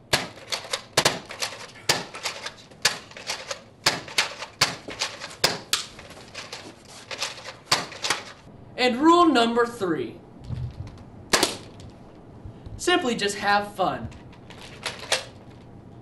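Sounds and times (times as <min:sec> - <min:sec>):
foam-dart blaster snapping: 0:00.1 - 0:03.2, 0:11.3 - 0:11.8.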